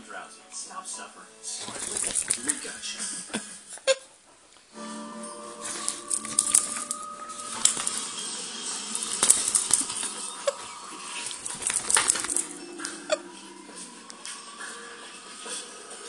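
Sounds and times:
fabric rustling and scratching: 1.6s - 2.7s, 5.7s - 8.2s, 8.8s - 10.1s, 11.2s - 12.5s.

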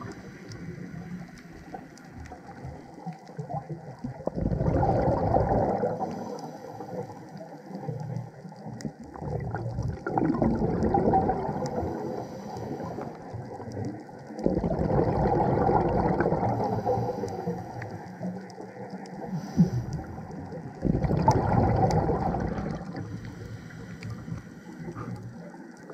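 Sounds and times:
underwater exhaust bubbles: 0.0s - 25.9s.

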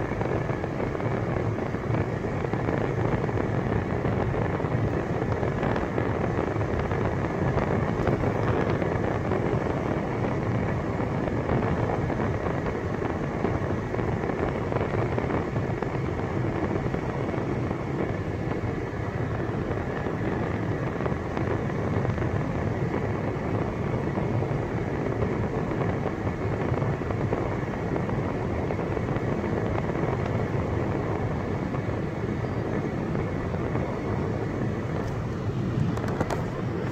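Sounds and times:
car driving on paved road: 0.0s - 36.9s.

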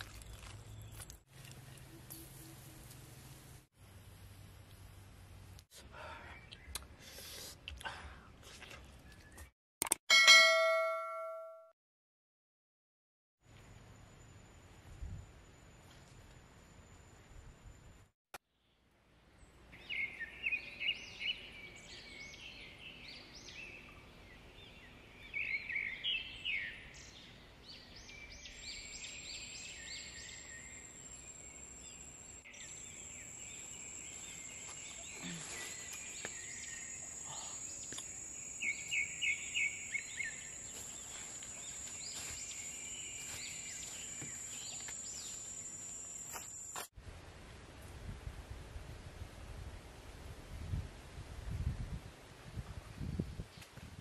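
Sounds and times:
bird chirps: 19.8s - 46.4s.

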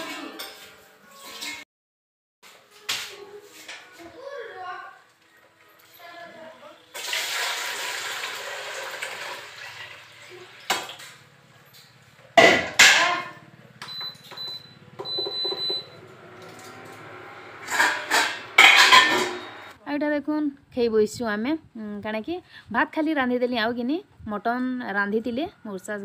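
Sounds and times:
water pouring into a pot: 6.9s - 10.8s
high electronic beeps: 13.8s - 16.0s
steel vessels knocking: 17.6s - 19.7s.

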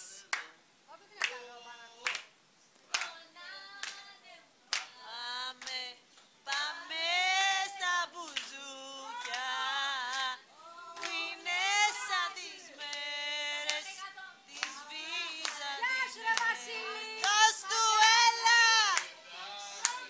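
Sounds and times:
hand claps: 0.0s - 0.6s, 2.0s - 4.1s, 4.7s - 5.0s, 5.6s - 6.7s, 8.2s - 8.6s, 9.2s - 10.4s, 11.0s - 20.0s
person singing unaccompanied: 0.0s - 20.0s.

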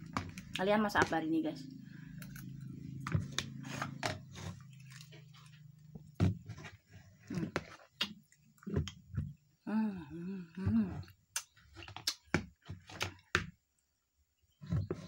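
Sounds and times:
low steady hum: 0.0s - 7.6s
chewing: 2.2s - 5.9s.

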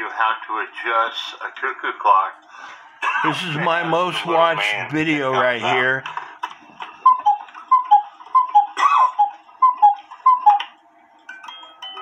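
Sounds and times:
cuckoo clock calls: 7.0s - 10.7s
music box playing: 7.1s - 12.0s.

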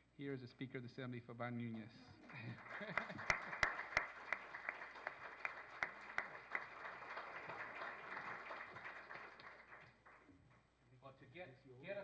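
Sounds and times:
audience applauding: 2.2s - 10.4s.

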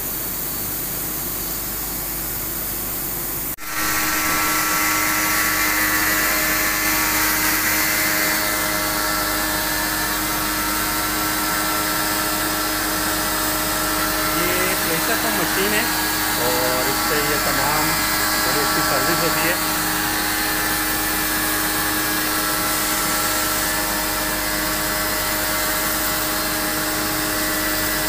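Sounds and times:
pressure washer pump humming: 3.6s - 28.0s
water spray jetting: 14.2s - 20.0s.

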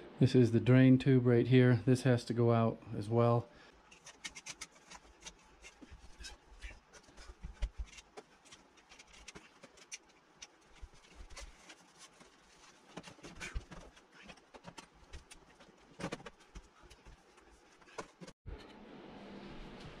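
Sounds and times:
plastic rustling: 3.8s - 18.4s.

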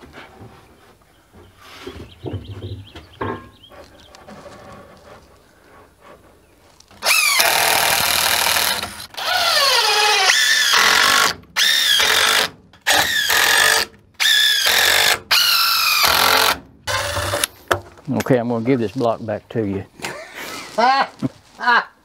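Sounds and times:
power drill running: 7.0s - 17.5s.

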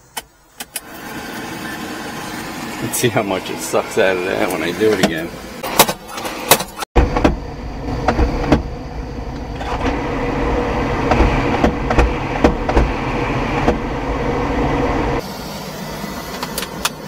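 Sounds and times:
heater blower fan whirring: 7.1s - 17.0s
hands knocking on dashboard: 11.1s - 13.0s.

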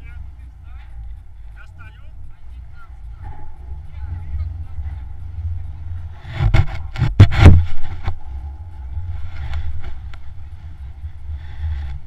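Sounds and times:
wind rumbling on microphone: 0.0s - 12.0s
knocks and scrapes: 3.2s - 12.0s.

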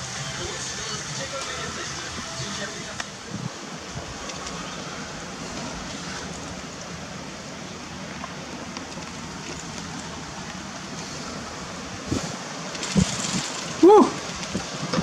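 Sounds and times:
blizzard wind blowing: 0.0s - 15.0s.

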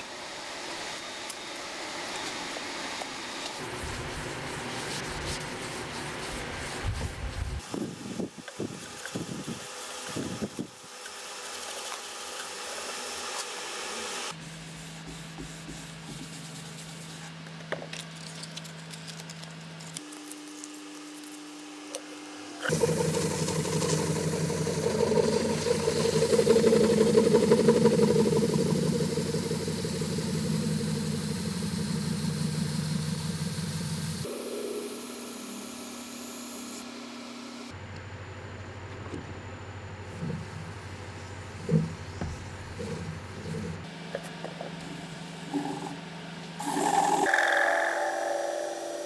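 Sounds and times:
tool rubbing spinning wood: 22.6s - 35.1s, 41.6s - 49.0s
lathe motor humming: 22.6s - 36.4s.

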